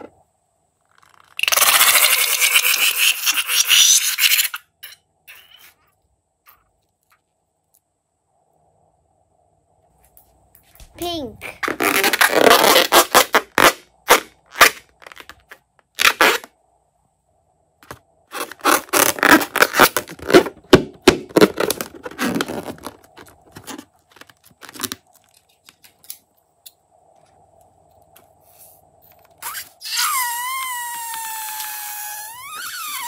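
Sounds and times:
squeaky rubber balloon crackling: 11.4s - 16.5s, 18.3s - 20.6s, 21.3s - 25.0s, 29.3s - 33.0s
pitched squeal: 29.2s - 33.0s.

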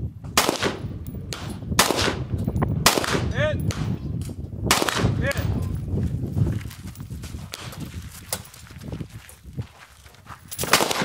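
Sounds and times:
rifle shots: 0.4s - 4.0s, 4.7s - 5.6s, 10.6s - 11.0s.

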